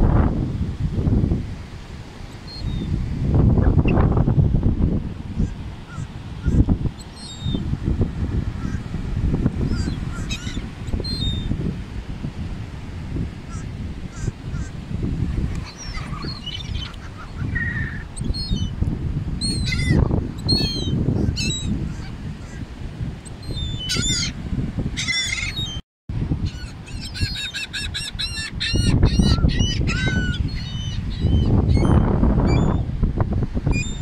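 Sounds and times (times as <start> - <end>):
gulls calling: 5.4 - 7.7, 8.6 - 8.9, 9.6 - 11.6, 13.5 - 14.8, 15.4 - 18.8, 23.3 - 24.4, 25.0 - 25.8, 26.4 - 32.8.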